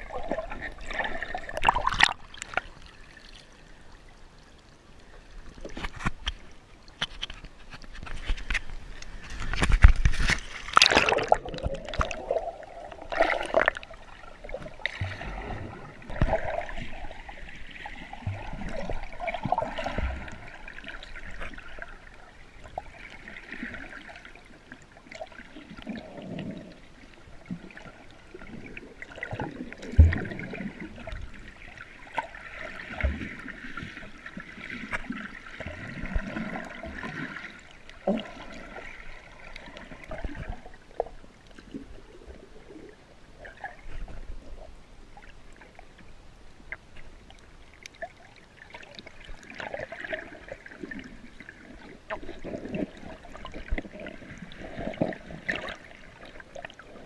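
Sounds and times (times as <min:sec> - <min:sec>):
underwater sloshing and gurgling: 0:00.0 - 0:57.0
splash into water: 0:09.8 - 0:12.4.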